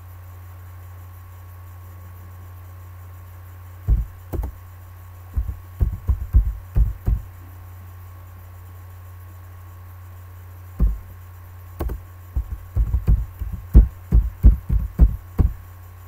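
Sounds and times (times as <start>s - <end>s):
steady low hum: 0.0s - 16.0s
keyboard keystrokes: 3.9s - 4.6s, 11.8s - 15.5s.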